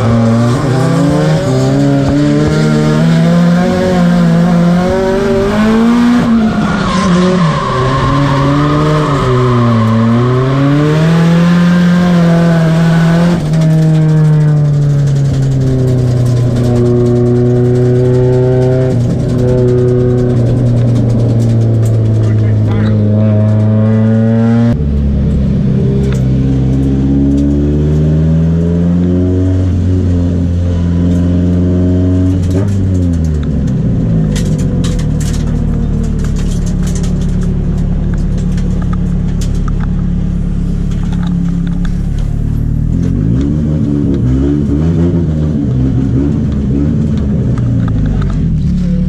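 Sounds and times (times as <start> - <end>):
car engine idling: 13.4 - 24.1, 33.2 - 43.2.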